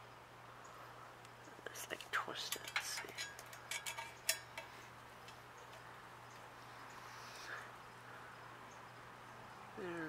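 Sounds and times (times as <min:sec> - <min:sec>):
metallic clicks and clinks: 0:02.4 - 0:05.9.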